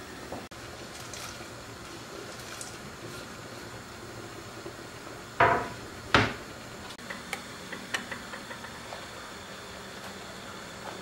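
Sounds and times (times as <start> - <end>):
pot simmering on gas stove: 0.0 - 11.0
kitchenware clattering knocks: 5.4 - 6.4.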